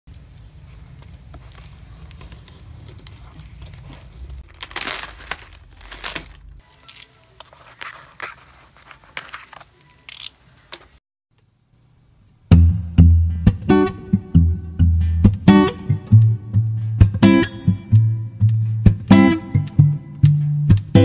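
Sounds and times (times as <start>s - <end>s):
cardboard box crinkling: 0.6s - 9.8s
packing tape tearing: 1.3s - 10.4s.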